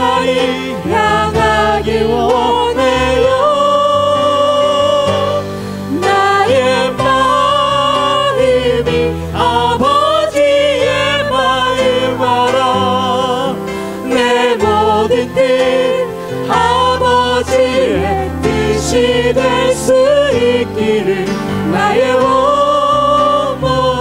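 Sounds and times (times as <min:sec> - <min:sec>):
vocal ensemble singing: 0:00.0 - 0:24.0.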